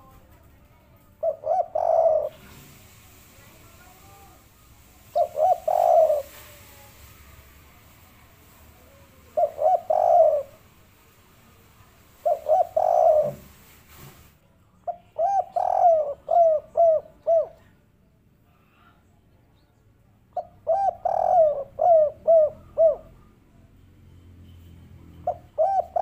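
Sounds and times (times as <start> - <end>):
dove cooing: 1.2 - 2.8, 5.0 - 6.7, 9.2 - 10.7, 12.2 - 13.6, 14.9 - 17.8, 20.4 - 23.4, 25.2 - 26.0.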